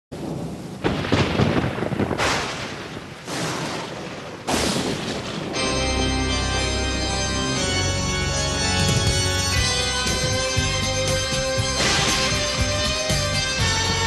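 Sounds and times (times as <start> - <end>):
thunder crashes: 0.2 - 5.8, 8.7 - 10.8, 11.5 - 13.8
organ music: 5.5 - 14.0.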